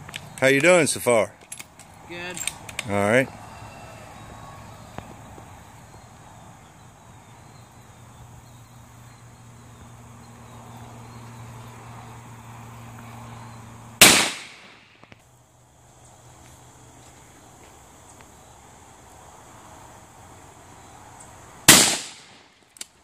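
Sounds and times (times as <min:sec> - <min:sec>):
rifle shot: 0:14.0 - 0:14.9, 0:21.7 - 0:22.4.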